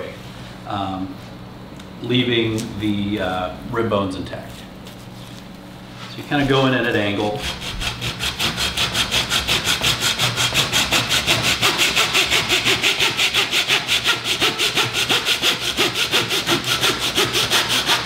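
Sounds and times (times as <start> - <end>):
hand saw cutting through bone: 7.2 - 18.0.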